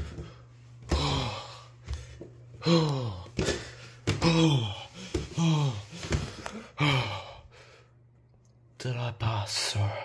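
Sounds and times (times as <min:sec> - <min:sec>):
man grunting with effort: 0:02.6 - 0:06.0, 0:06.6 - 0:07.4.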